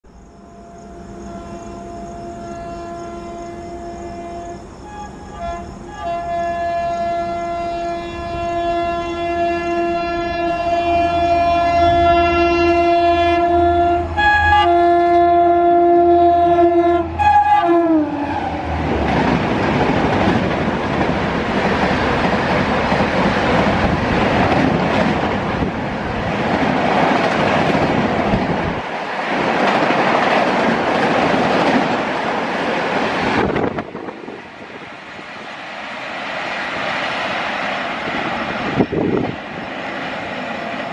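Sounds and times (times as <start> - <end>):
train horn: 0.3 - 19.0
train coaches rushing past: 16.0 - 40.9.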